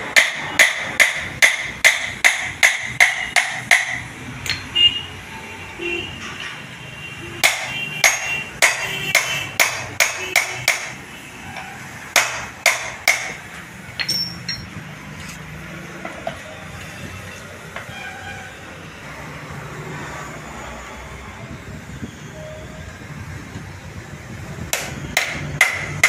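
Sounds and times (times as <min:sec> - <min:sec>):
hammer ringing on anvil: 0:14.0 - 0:14.7.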